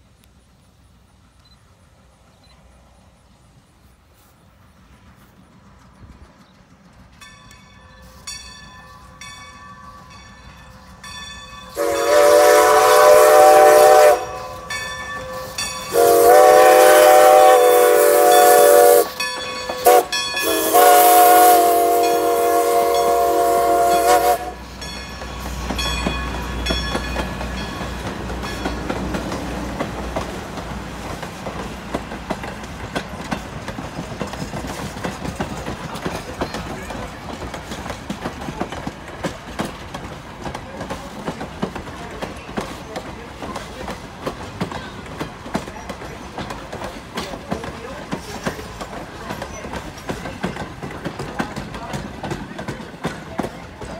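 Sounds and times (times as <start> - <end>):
train coaches rumbling past: 0.0 - 53.9
rhythmic crossing bell ringing: 7.2 - 12.0, 14.2 - 16.0, 19.0 - 20.8, 24.7 - 28.8
steam locomotive whistle: 11.7 - 24.8
wheel clatter on rails: 24.8 - 53.9.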